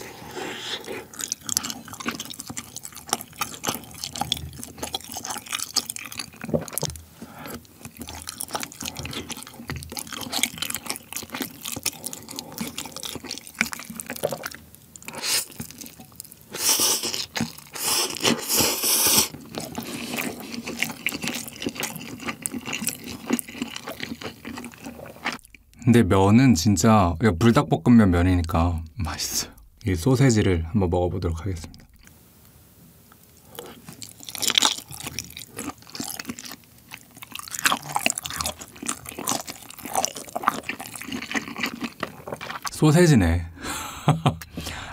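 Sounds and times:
wet chewing and slurping: 0.0 - 25.8, 33.4 - 42.7.

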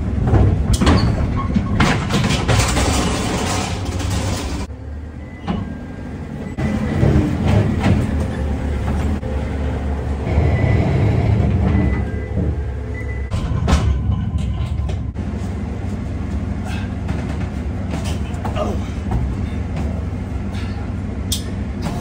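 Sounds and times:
forklift engine rumbling: 0.0 - 22.0
forks and pallet clanking: 0.3 - 4.7.

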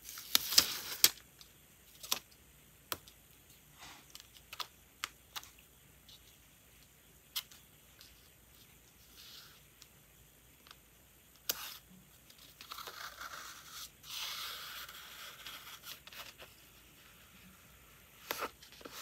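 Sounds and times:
tape rustling: 0.0 - 10.0.

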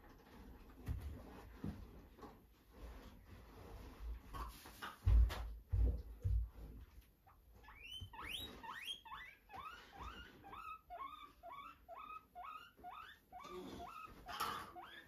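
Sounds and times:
guinea pig squealing: 7.6 - 15.0.

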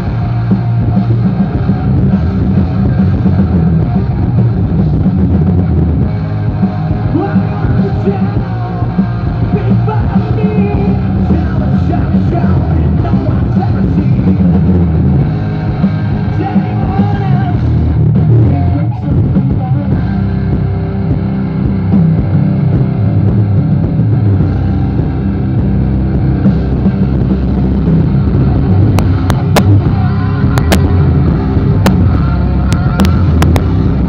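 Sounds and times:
loud rock band playing: 0.0 - 34.0
man singing: 7.0 - 14.9, 16.2 - 17.7, 18.3 - 20.5.

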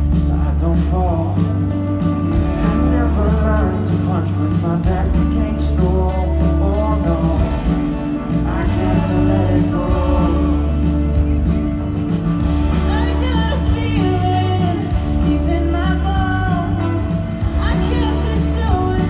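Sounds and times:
lead vocal singing: 0.0 - 19.0
live rock band playing: 0.0 - 19.0.

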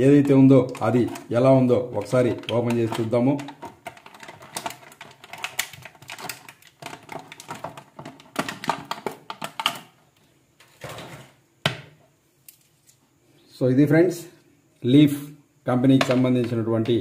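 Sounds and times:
plastic packaging crinkling: 0.6 - 9.9.

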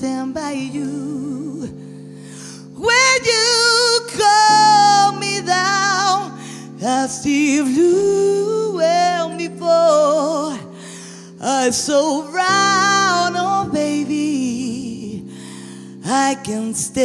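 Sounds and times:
woman singing with vibrato: 0.0 - 1.8, 2.6 - 15.4, 16.0 - 17.0.

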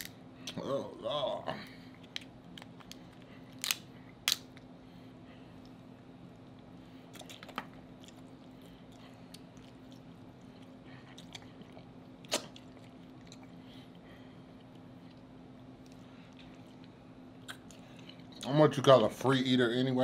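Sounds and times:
shell snapping: 3.6 - 4.5
soft chewing: 6.4 - 18.5.

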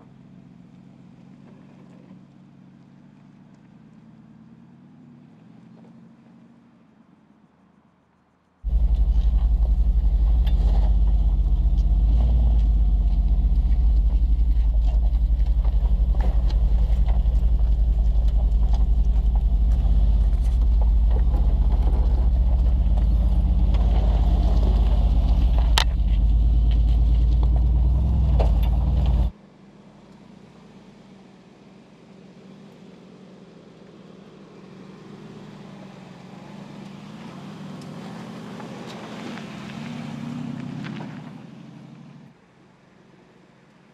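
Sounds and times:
engine low rumble: 8.6 - 43.9
stones clicking under vehicle: 8.7 - 29.3.

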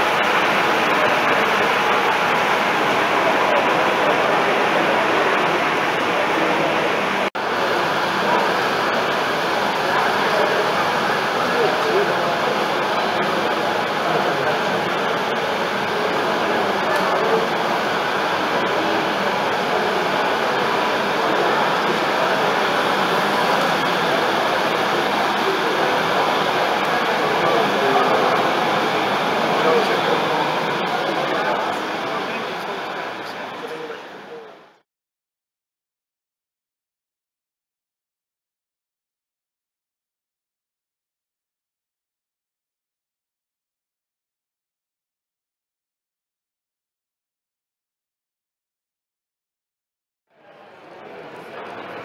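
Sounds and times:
crowd hubbub: 0.0 - 34.8, 50.3 - 52.0
model train running on track: 0.0 - 34.8, 50.5 - 52.0.

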